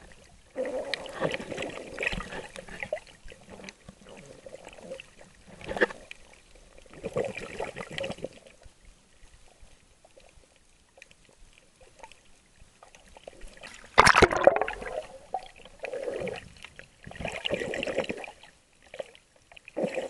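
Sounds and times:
seawater sloshing and gurgling: 0:00.0 - 0:08.6, 0:13.2 - 0:20.0
water splash: 0:13.6 - 0:15.6.

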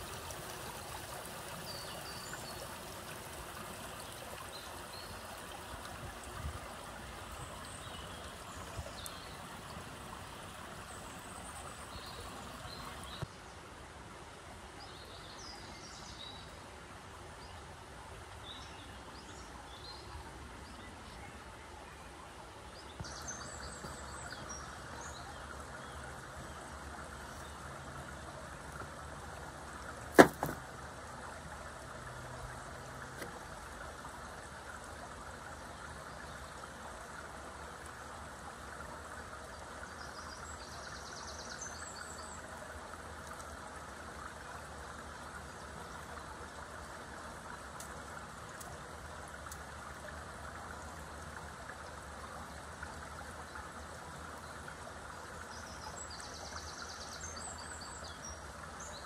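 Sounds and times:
running water: 0:00.0 - 0:59.0
sharp knock: 0:30.2 - 0:30.6.

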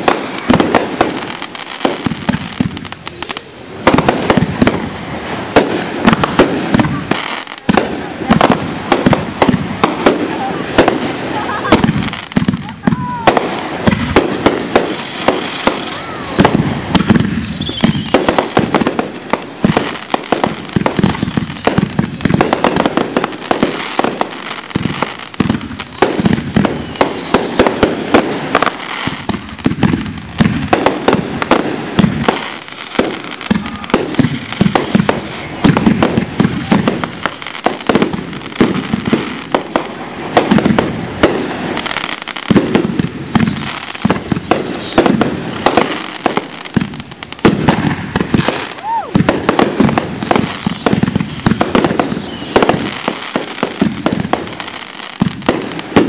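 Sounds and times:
falling firework whistles: 0:00.0 - 0:02.1, 0:12.9 - 0:19.1, 0:19.7 - 0:24.6, 0:25.8 - 0:27.9, 0:32.2 - 0:39.5, 0:41.8 - 0:46.6, 0:47.7 - 0:55.4
fireworks launching and bursting: 0:00.0 - 0:56.0.

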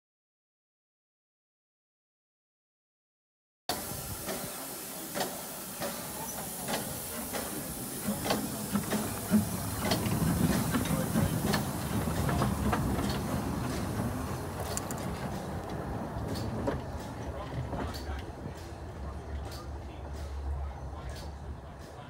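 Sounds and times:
steam hissing: 0:03.7 - 0:18.8
locomotive wheels clanking: 0:03.8 - 0:22.0.

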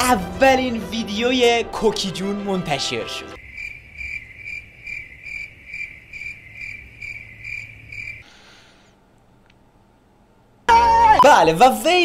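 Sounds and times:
cricket chirping: 0:03.4 - 0:08.3.

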